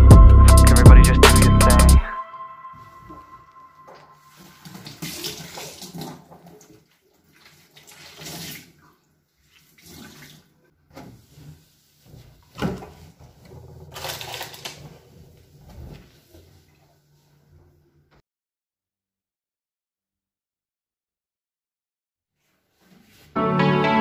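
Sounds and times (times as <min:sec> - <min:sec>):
tap water running into sink: 0:04.6 - 0:08.8.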